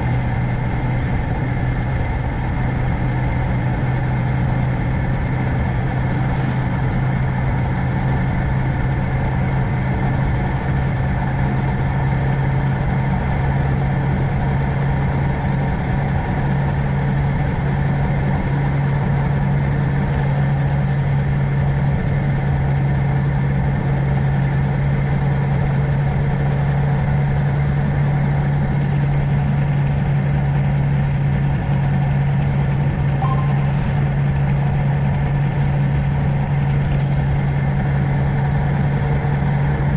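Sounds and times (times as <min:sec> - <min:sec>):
engine running steadily: 0:00.0 - 0:33.0
brief high chirp: 0:33.2 - 0:34.0.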